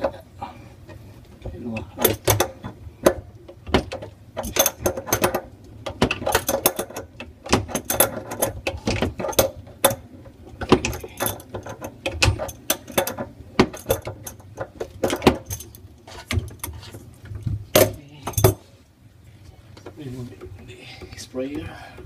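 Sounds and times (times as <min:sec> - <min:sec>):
metallic clicking and rattling of tools: 0:01.7 - 0:10.0, 0:10.6 - 0:17.0, 0:17.7 - 0:18.7.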